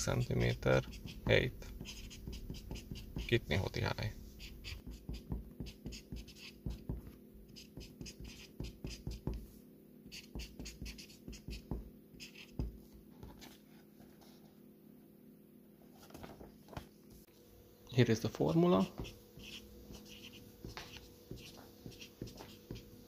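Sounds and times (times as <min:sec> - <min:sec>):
felt marker scratching on paper: 0:00.0 - 0:09.5, 0:10.1 - 0:13.6, 0:18.8 - 0:23.0.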